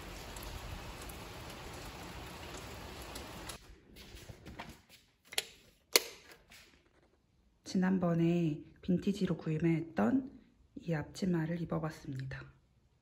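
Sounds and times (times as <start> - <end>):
rain falling: 0.0 - 3.6.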